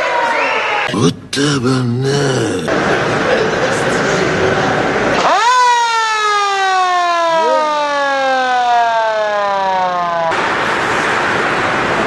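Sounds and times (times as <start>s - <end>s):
electric siren winding down: 5.2s - 10.3s.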